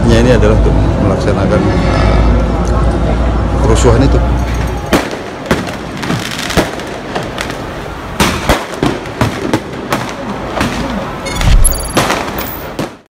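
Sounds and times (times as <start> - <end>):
firecrackers banging and popping: 4.5 - 13.0.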